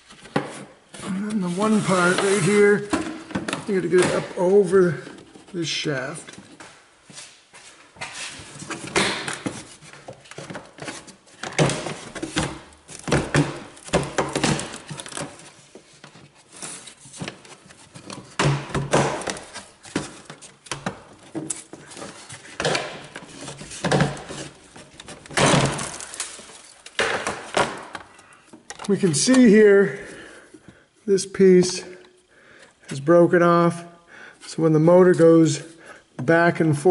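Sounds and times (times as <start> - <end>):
plastic panel knocks and clatters: 26.9 - 28.1.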